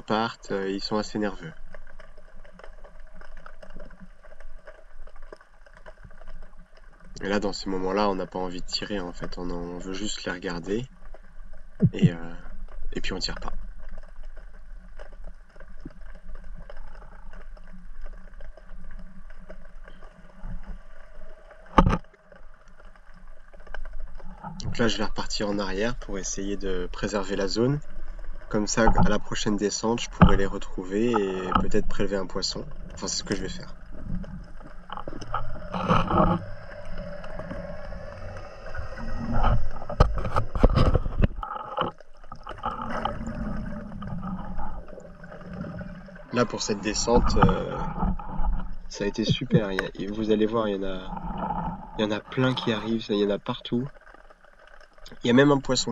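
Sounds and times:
faint clicks: 0:00.0 - 0:55.9
low underwater rumble: 0:00.0 - 0:55.9
sharp underwater knocks: 0:21.7 - 0:22.0.

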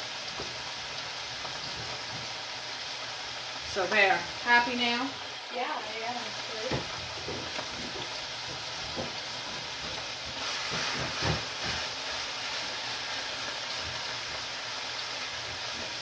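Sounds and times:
steak sizzling in a frying pan: 0:00.0 - 0:16.0.

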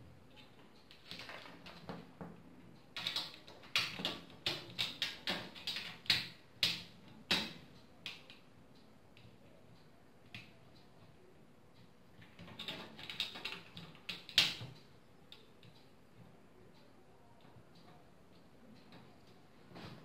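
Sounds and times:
plastic fan frame clicking on metal: 0:00.3 - 0:08.5, 0:12.2 - 0:15.9.

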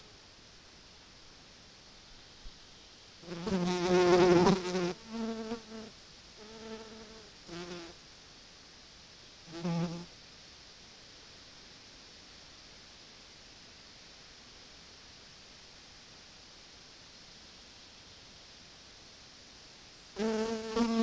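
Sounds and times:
flying insect buzzing: 0:03.2 - 0:08.0, 0:20.2 - 0:21.0.

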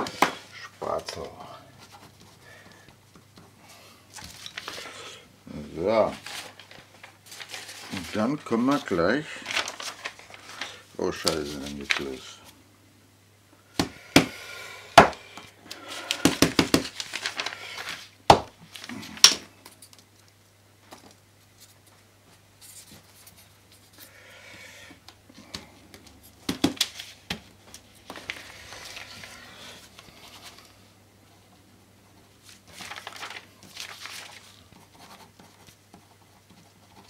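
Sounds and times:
paper rustling and scraping: 0:04.1 - 0:05.0, 0:05.9 - 0:12.6, 0:15.7 - 0:20.0, 0:26.8 - 0:30.8, 0:32.4 - 0:37.0.

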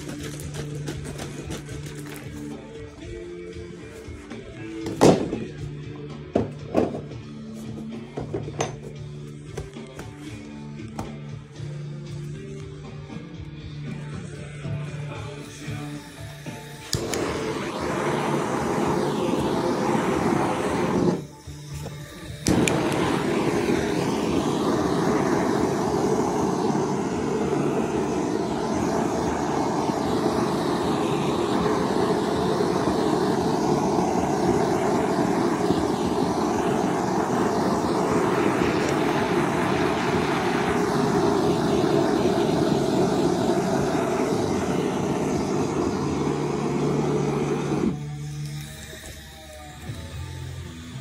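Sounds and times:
propane torch flame rushing: 0:00.0 - 0:02.7, 0:15.8 - 0:48.0.

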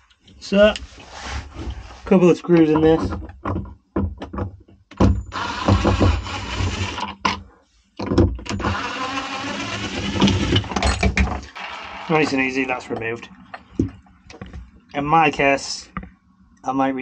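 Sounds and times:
impact driver running: 0:05.3 - 0:07.0.

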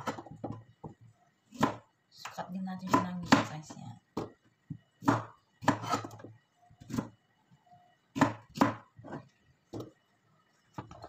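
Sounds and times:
knife chopping on cutting board: 0:01.5 - 0:01.8, 0:02.8 - 0:03.6, 0:05.0 - 0:07.1, 0:08.1 - 0:09.9.

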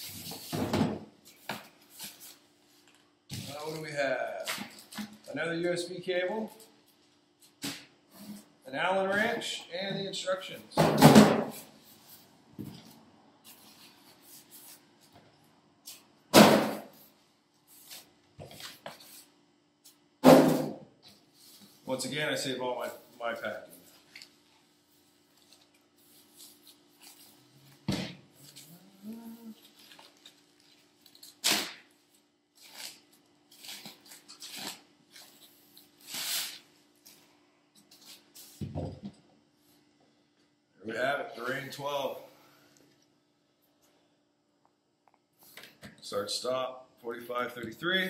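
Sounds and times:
plastic bag rustling and crinkling: 0:29.5 - 0:31.4.

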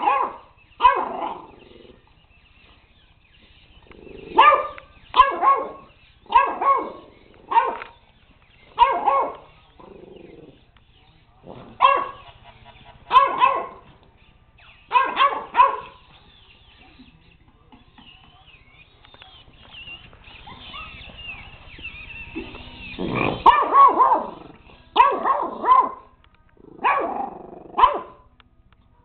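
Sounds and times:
puppy barking: 0:00.0 - 0:01.5, 0:04.4 - 0:08.0, 0:08.8 - 0:09.5, 0:11.8 - 0:13.9, 0:14.9 - 0:16.1, 0:20.3 - 0:26.1, 0:26.8 - 0:28.2.

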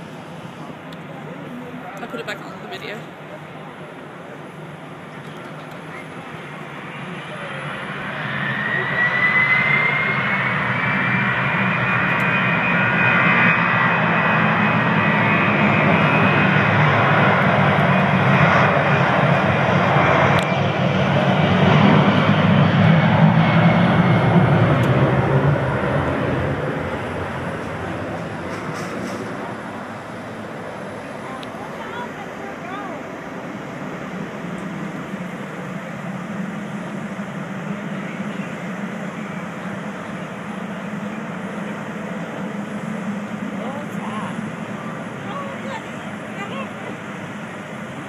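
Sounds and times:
jet engines roaring: 0:00.0 - 0:48.0.

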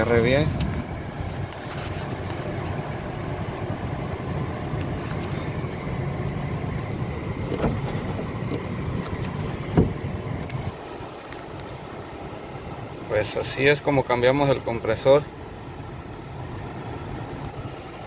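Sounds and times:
car cabin blower rushing: 0:00.0 - 0:10.9
car engine idling: 0:00.0 - 0:18.0.

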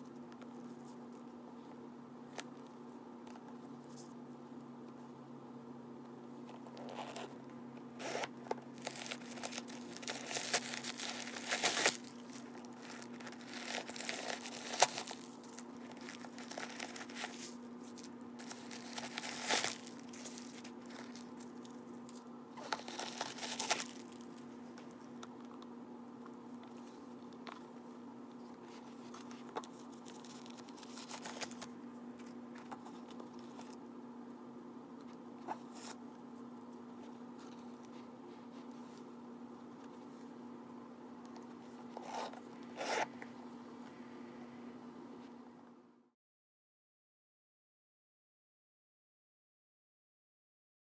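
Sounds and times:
faint steady hum: 0:00.0 - 0:46.2
paper crinkling and rustling: 0:08.0 - 0:25.0, 0:28.4 - 0:33.8.

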